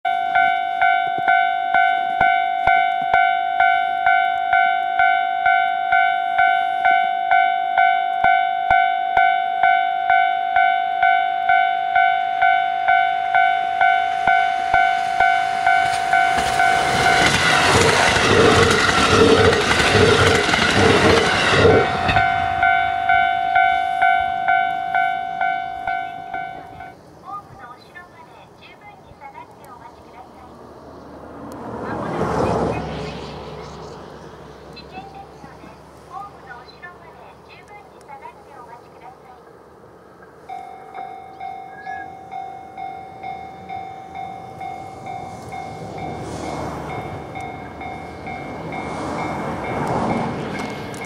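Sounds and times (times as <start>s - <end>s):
level crossing alarm ringing: 0.0s - 27.0s, 40.4s - 51.0s
diesel train passing: 0.1s - 51.0s.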